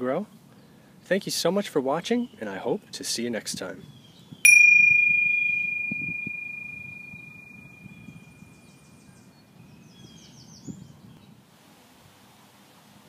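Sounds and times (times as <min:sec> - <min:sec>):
high bell-like ding: 0:04.5 - 0:08.2
faint high chirps: 0:04.5 - 0:08.4.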